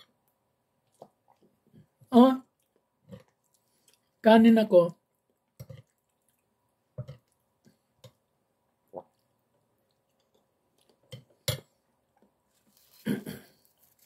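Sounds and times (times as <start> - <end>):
chewing: 2.5 - 4.2, 5.3 - 7.5.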